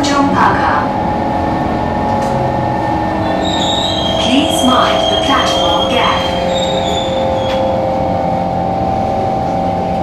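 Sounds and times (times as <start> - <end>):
train rumble: 0.0 - 10.0
train whining tones: 0.0 - 10.0
high-pitched squeal: 3.2 - 8.1.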